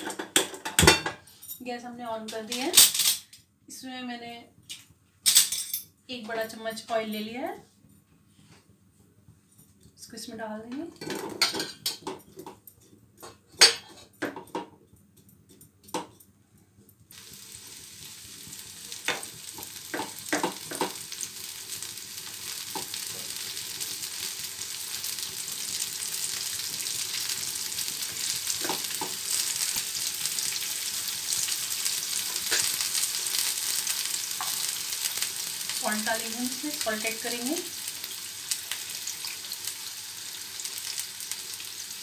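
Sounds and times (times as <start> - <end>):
fruit sizzling in hot oil: 17.1 - 42.0
spatula knocking on pan: 19.1 - 21.0.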